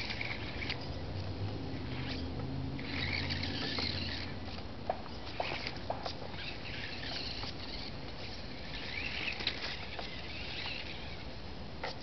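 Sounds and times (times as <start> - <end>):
rc car motor buzzing: 0.0 - 12.0.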